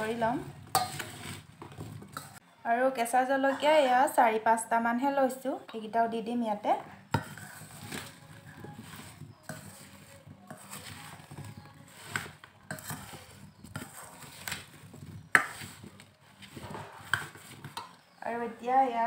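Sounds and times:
dried fruit rattling and scraping: 0.0 - 2.4, 7.1 - 18.2.

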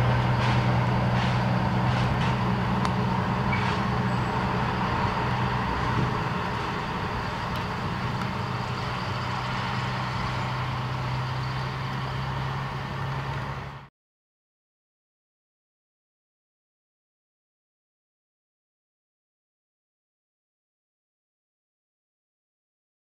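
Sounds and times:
locomotive diesel engine droning: 0.0 - 13.9.

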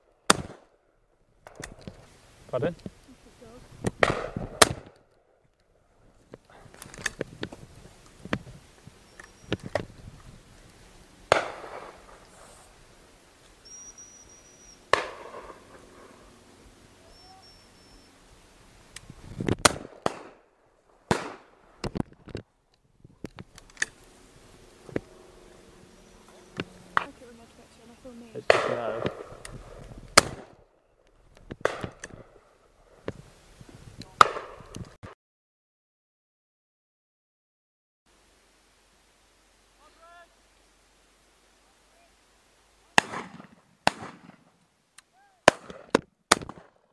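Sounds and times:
faint sharp gunshot cracks: 0.3 - 0.7, 3.9 - 5.0, 11.3 - 12.2, 14.9 - 15.8, 19.6 - 20.4, 21.1 - 21.5, 28.5 - 29.4, 30.2 - 30.6, 31.6 - 32.2, 34.2 - 34.6, 43.0 - 44.5, 45.4 - 46.8
shotgun shots echoing: 0.3 - 0.7, 4.0 - 4.9, 11.3 - 12.2, 14.9 - 16.1, 19.6 - 20.4, 21.1 - 21.6, 28.4 - 29.5, 30.2 - 30.6, 31.6 - 32.4, 34.2 - 34.7, 43.0 - 44.5, 45.4 - 46.8.

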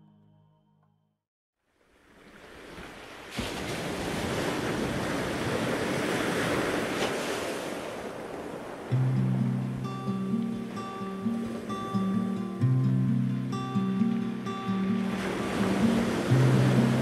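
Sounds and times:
guitar music: 0.0 - 1.0, 8.9 - 17.0
ocean waves breaking: 1.7 - 17.0.

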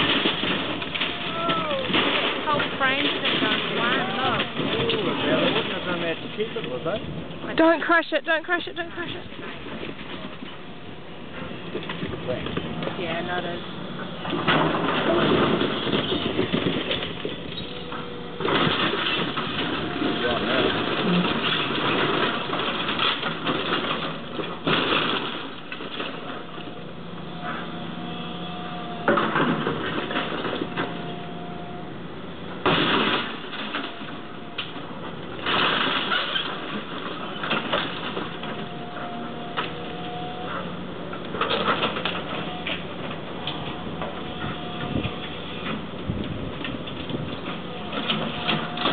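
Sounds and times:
timber breaking and debris falling: 0.0 - 6.3, 18.3 - 26.5, 32.6 - 40.4
loud crashes: 0.0 - 6.8, 14.2 - 26.1, 32.6 - 34.8, 35.4 - 38.6
excavator engine running: 0.0 - 48.9.

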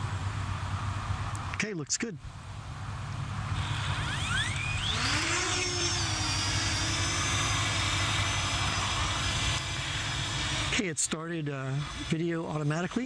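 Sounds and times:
drone rotors whining: 3.1 - 13.0.

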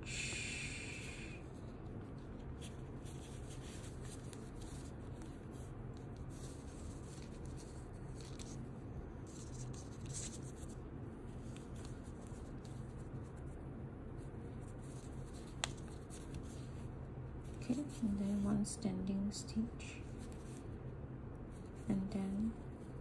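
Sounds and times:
low steady hum: 0.0 - 23.0
crochet hook and yarn scratching: 2.1 - 8.6, 9.2 - 13.6, 17.4 - 18.7.

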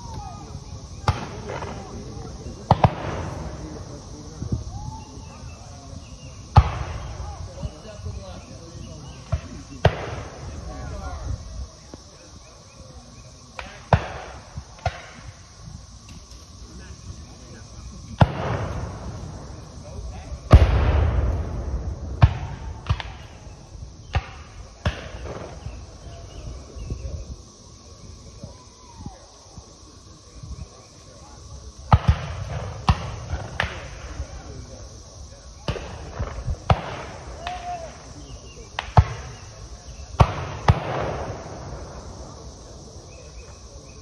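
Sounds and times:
distant musket gunshots: 18.2 - 19.3
distant musket shots echoing: 20.5 - 23.4.

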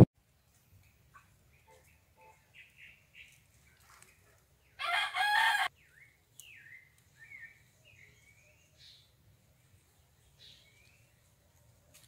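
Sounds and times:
small birds chirping: 0.3 - 5.0, 5.7 - 12.0
rooster crowing: 4.8 - 5.7.

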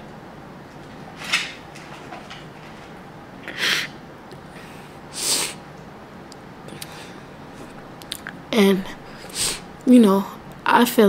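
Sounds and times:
woman's sharp noisy breaths: 4.5 - 5.6, 8.9 - 9.7.

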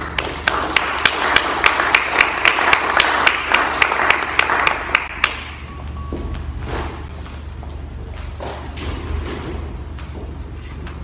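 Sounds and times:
audience applauding: 0.0 - 5.6
sharp close claps: 0.0 - 5.7.

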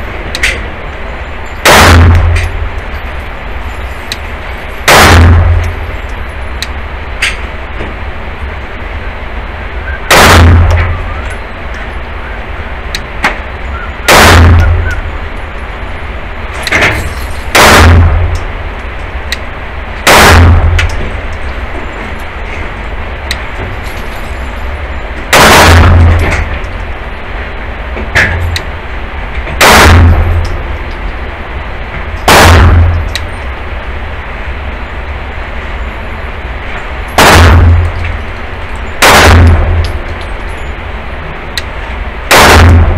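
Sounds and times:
faint distant gunshots: 1.6 - 2.6, 4.9 - 5.9, 10.1 - 11.2, 14.1 - 15.1, 17.5 - 18.5, 20.0 - 21.0, 25.3 - 26.6, 29.6 - 30.8, 32.2 - 33.1, 37.2 - 38.2, 39.0 - 40.1, 42.3 - 42.9
pistol shots with ringing echo: 1.6 - 3.0, 4.8 - 6.1, 10.1 - 11.5, 14.1 - 15.3, 16.6 - 18.6, 20.0 - 21.1, 25.3 - 26.7, 29.6 - 30.9, 32.2 - 33.5, 37.2 - 40.7, 42.3 - 42.9.

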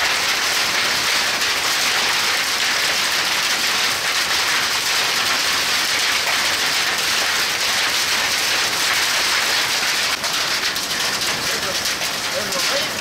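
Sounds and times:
hail and heavy rain on pavement: 0.0 - 13.0.

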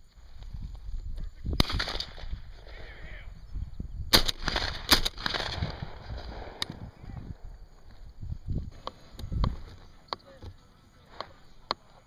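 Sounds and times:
shotgun shots with echo: 1.6 - 2.4, 4.1 - 6.8.

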